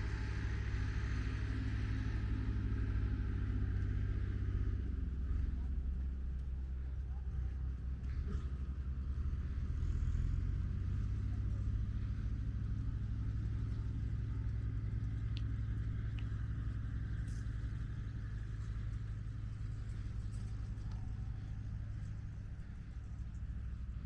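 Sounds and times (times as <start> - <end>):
low rumble: 0.0 - 24.0.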